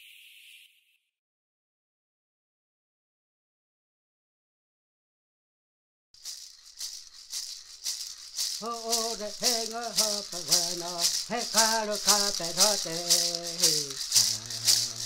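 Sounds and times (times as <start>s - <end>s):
rattle shaken in a beat: 6.2s - 15.0s
person singing: 8.6s - 15.0s.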